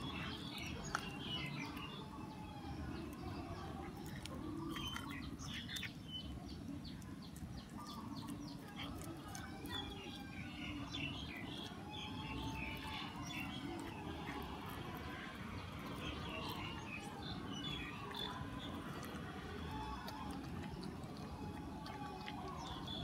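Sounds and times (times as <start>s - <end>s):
birds chirping: 0.0s - 23.0s
cat crunching on bone: 0.0s - 23.0s.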